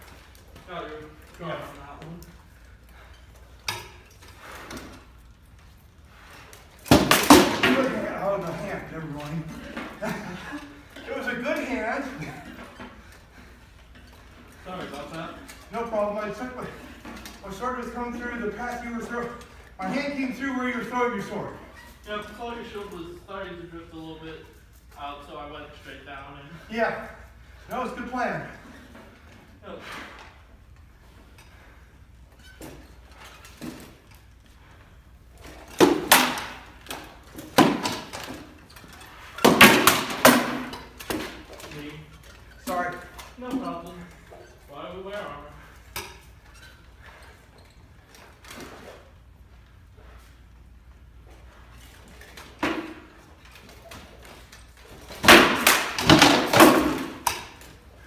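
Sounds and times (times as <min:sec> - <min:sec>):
sword striking wooden shield: 0:55.2 - 0:57.3.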